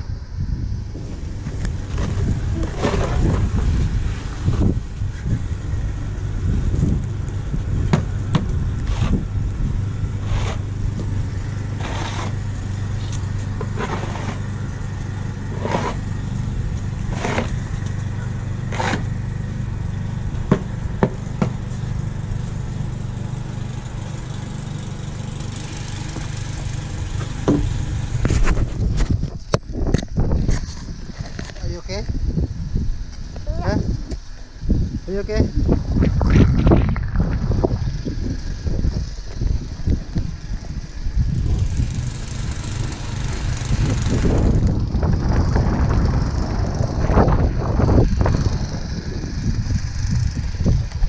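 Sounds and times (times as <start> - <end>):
low rumble: 0.0 - 24.2, 24.9 - 51.0
snow shovel scraping: 1.8 - 4.7, 8.8 - 9.2, 10.2 - 10.7, 11.7 - 14.5, 15.5 - 16.1, 17.0 - 17.6, 18.7 - 19.2.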